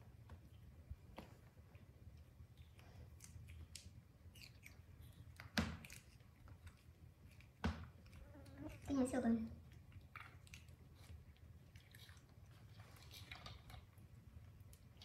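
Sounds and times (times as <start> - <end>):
monkeys chewing fruit: 1.6 - 15.0.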